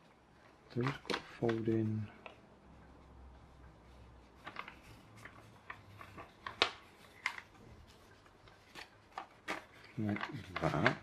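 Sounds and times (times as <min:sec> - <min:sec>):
paper being folded and creased: 0:00.4 - 0:02.1, 0:03.4 - 0:11.0.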